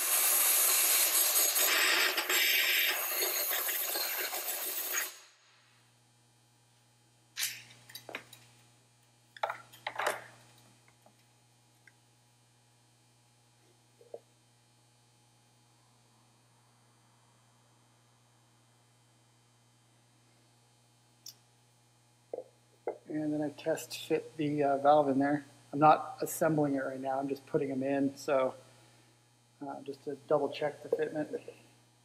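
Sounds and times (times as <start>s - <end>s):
compressed air blow gun hissing: 0.0s - 5.2s.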